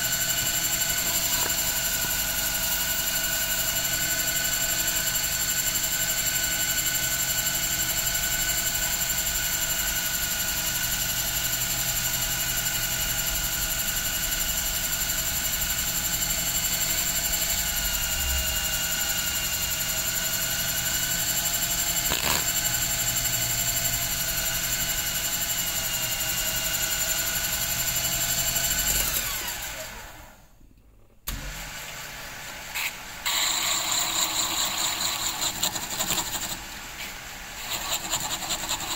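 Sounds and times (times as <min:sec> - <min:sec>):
sandpaper rubbing spinning tip: 0:00.0 - 0:03.0, 0:21.9 - 0:23.1, 0:32.8 - 0:38.9
lathe motor whining: 0:00.0 - 0:07.6, 0:14.9 - 0:30.4, 0:31.3 - 0:38.9.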